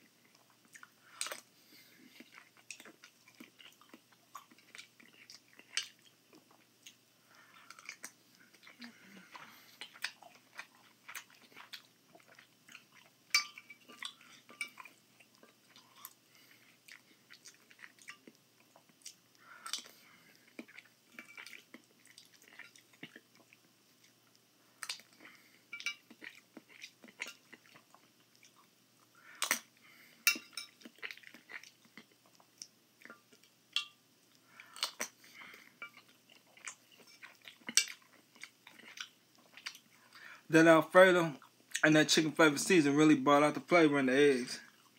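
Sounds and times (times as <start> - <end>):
person chewing: 0.0 - 40.4.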